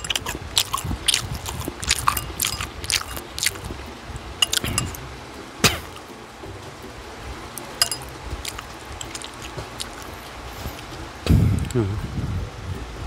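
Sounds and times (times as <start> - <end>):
chopsticks clinking on glass bowl: 0.0 - 3.6, 4.4 - 5.0, 7.7 - 10.0.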